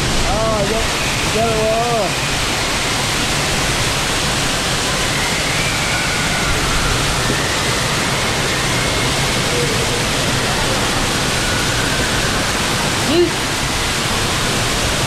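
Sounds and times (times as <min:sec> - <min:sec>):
rushing water: 0:00.0 - 0:15.0.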